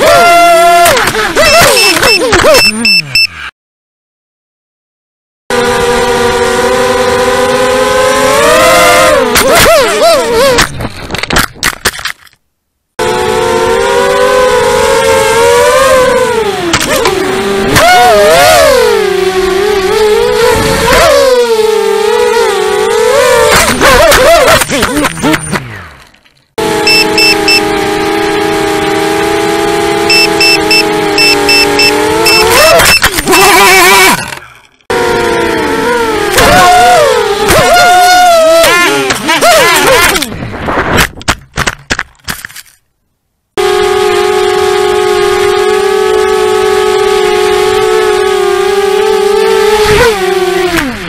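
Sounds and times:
drone motors whining: 0.0s - 3.5s, 13.0s - 40.5s
short high beeps: 1.5s - 3.4s, 26.9s - 27.7s, 30.1s - 33.4s
quadcopter motor whine: 26.6s - 32.8s.

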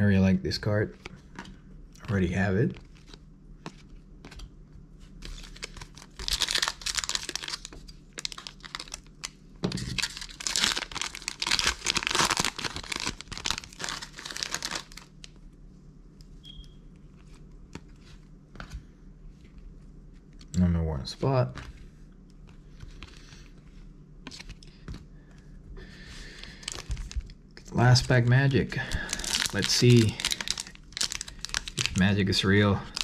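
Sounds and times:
foil pack crinkling and tearing: 5.2s - 15.2s, 26.2s - 33.0s.

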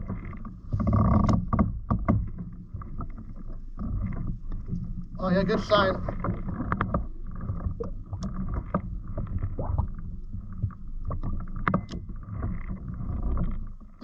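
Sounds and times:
water lapping against boat hull: 0.0s - 14.0s
wind rumble on microphone: 3.8s - 14.0s.

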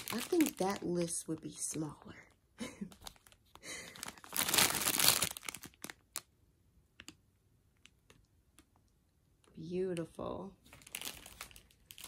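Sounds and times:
plastic bags crinkling: 0.0s - 1.8s, 2.6s - 6.3s, 10.7s - 12.0s.

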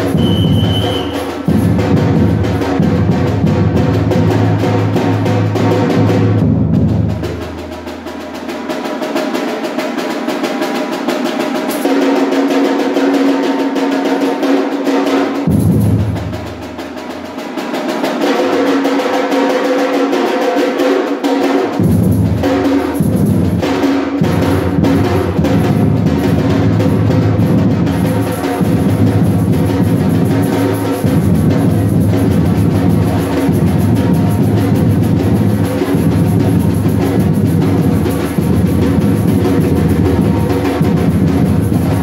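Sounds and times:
bass drum beats: 0.0s - 7.4s
snare drums playing fast rhythm: 0.0s - 42.0s.

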